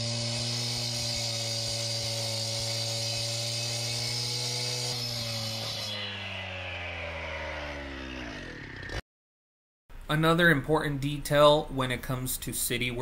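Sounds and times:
blade grinding pavement: 0.0s - 9.0s
cut-off saw engine whine: 0.0s - 9.0s.

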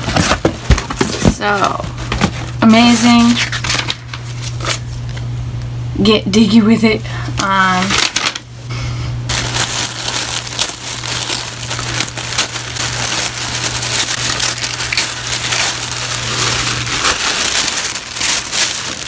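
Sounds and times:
steady low hum: 0.0s - 19.0s
tissue paper crinkling: 9.3s - 19.0s.

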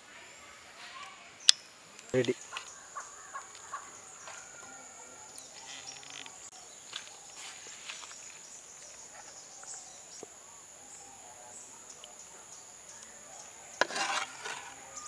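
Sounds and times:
insects chirring: 0.0s - 15.0s
ladle scraping clay pot: 13.8s - 15.0s.

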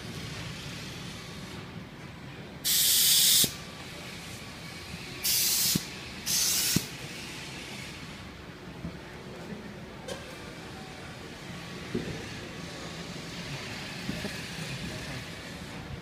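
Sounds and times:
low workshop background: 0.0s - 16.0s
compressed air hissing: 2.6s - 3.7s, 5.2s - 8.0s.

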